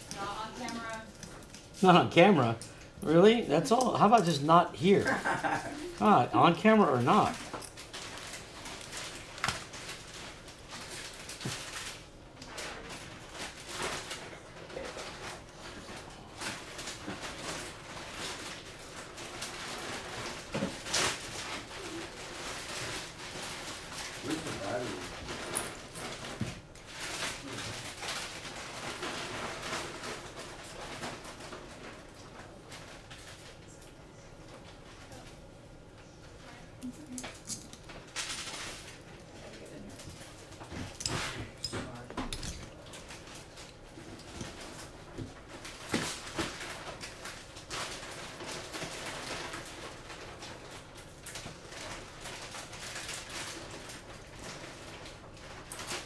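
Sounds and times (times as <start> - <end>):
rustling of wires: 0.0 - 56.0
hands clicking and rustling parts: 3.6 - 5.2.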